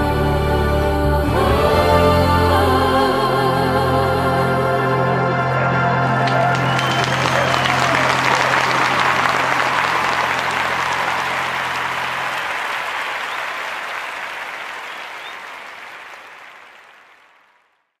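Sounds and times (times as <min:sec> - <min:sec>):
audience applauding: 0:05.5 - 0:17.9.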